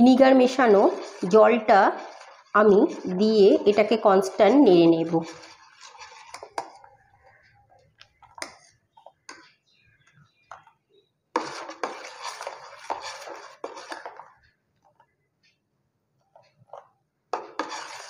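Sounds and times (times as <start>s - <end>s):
metal spoon scraping saucepan: 0.0s - 7.5s, 11.4s - 14.4s, 17.4s - 18.0s.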